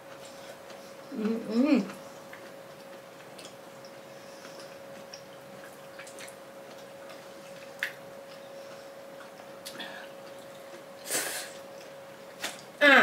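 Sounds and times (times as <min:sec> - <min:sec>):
faint hum: 0:00.0 - 0:13.0
wet chewing smacks: 0:01.9 - 0:10.9.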